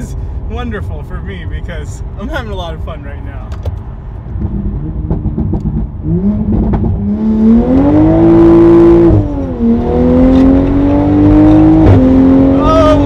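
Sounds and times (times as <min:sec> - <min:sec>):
loud car engine revving: 0:04.4 - 0:13.0.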